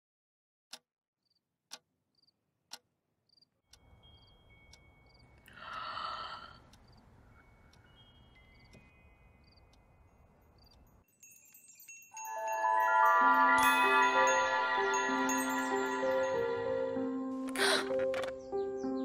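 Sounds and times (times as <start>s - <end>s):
clock ticking: 1.7s - 1.9s, 2.7s - 2.9s, 3.7s - 9.8s
breathy sigh-like sound: 5.5s - 6.6s.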